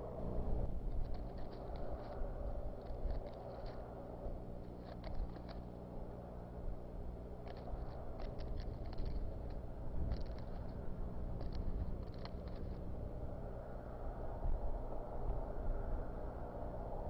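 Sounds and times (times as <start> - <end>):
low electrical hum: 0.0 - 17.0
twigs crackling and snapping: 0.9 - 5.8, 7.3 - 12.9.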